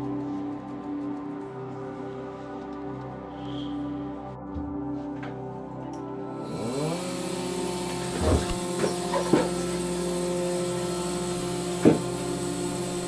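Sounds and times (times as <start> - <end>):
vacuum pump motor humming: 6.3 - 13.0.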